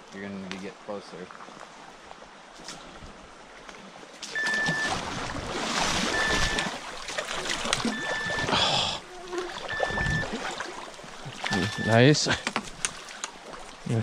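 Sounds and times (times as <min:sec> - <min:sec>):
nets splashing through water: 0:04.3 - 0:08.7, 0:09.3 - 0:13.7
short steady beeps: 0:04.4 - 0:05.0, 0:06.1 - 0:06.7, 0:07.9 - 0:08.6, 0:09.6 - 0:10.3, 0:11.4 - 0:12.0.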